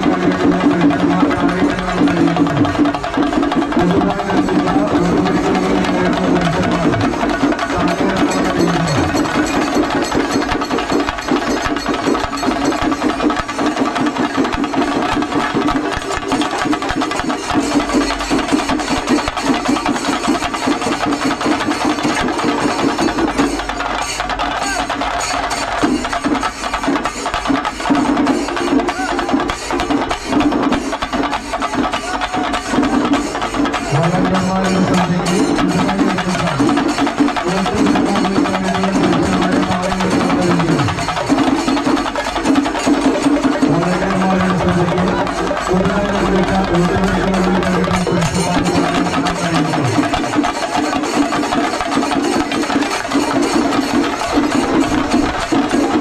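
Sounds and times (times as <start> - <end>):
drums in fast roll: 0.0 - 56.0
hand cymbals: 0.0 - 56.0.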